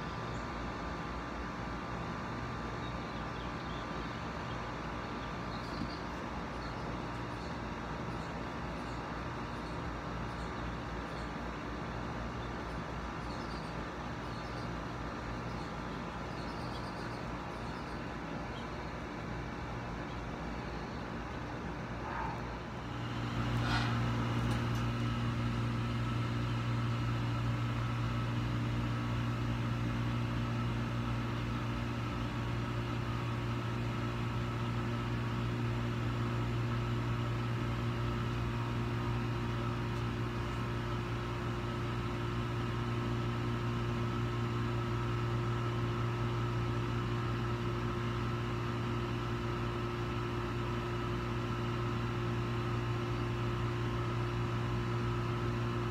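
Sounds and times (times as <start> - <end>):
motor humming: 21.3 - 29.7.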